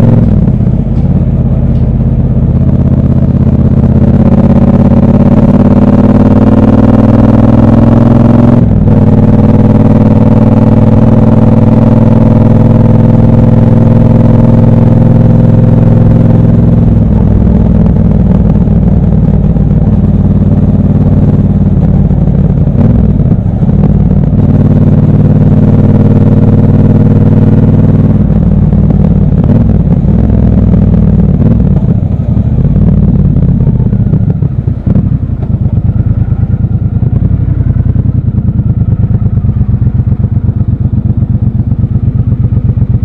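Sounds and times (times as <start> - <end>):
motorcycle engine running: 0.0 - 43.0.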